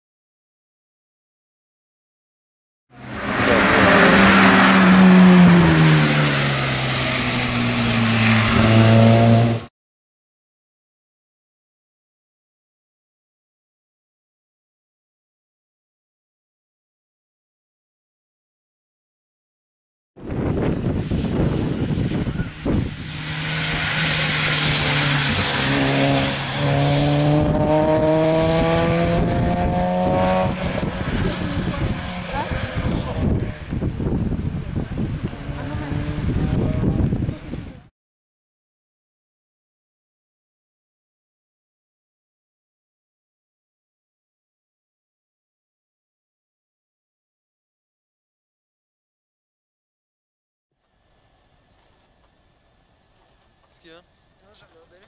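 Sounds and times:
rally car engine: 2.9 - 9.7, 20.2 - 37.9
tyres hissing on wet road: 3.0 - 9.7, 22.2 - 28.4.

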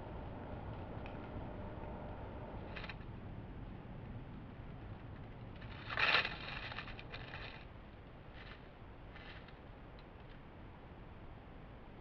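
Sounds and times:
claws scraping tree bark: 5.6 - 7.7.

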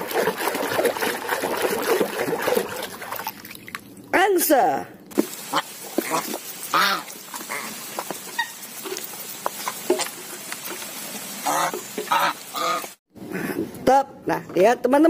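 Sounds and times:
geese honking: 5.5 - 8.7, 11.4 - 13.0.

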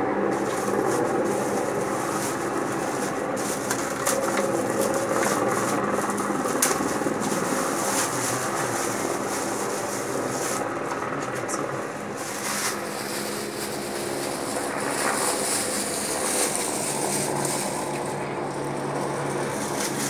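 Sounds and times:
gondola cabin mechanical hum and rattle: 0.0 - 20.0.

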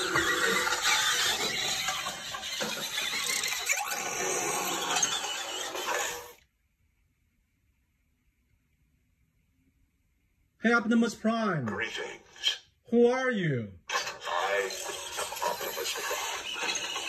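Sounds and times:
toy transformation sound effects: 0.0 - 6.4, 13.9 - 17.0.

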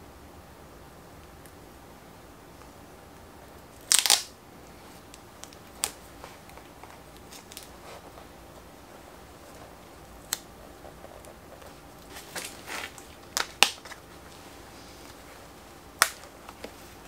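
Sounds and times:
tape crackle: 3.6 - 17.0
tape and paper crinkling: 3.7 - 4.3, 5.0 - 8.3, 9.4 - 15.3.

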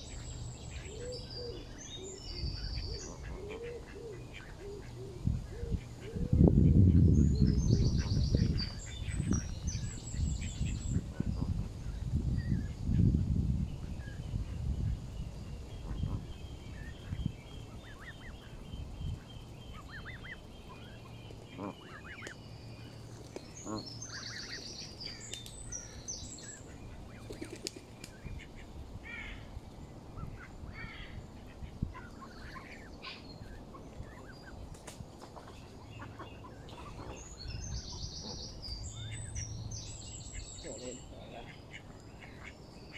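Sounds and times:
goslings peeping: 0.0 - 13.2, 13.8 - 42.9.

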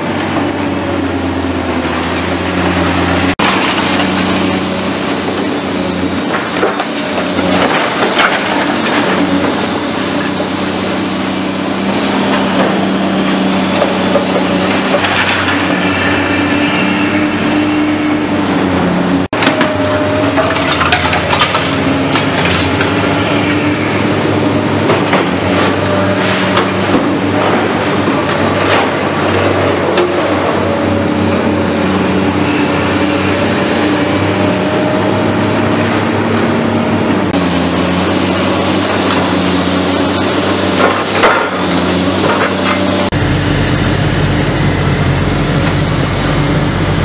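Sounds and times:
excavator diesel engine running: 0.0 - 47.0
rubble clattering and crunching: 20.3 - 23.0.

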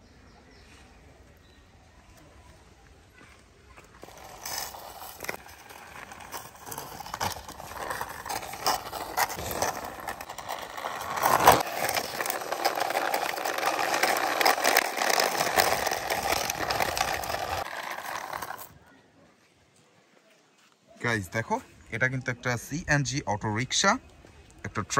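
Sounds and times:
toy wheels scraping on concrete: 3.7 - 18.8.

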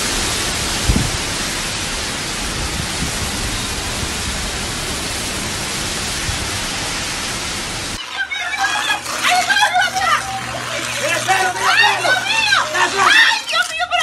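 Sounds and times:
hurricane wind: 0.0 - 8.0
wind gusts buffeting microphone: 0.0 - 8.0
heavy rain: 0.0 - 13.2.

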